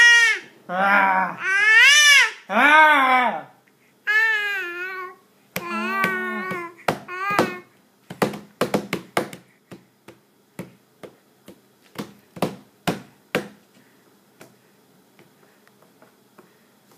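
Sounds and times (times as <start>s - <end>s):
hand slapping a table: 5.6s - 13.6s.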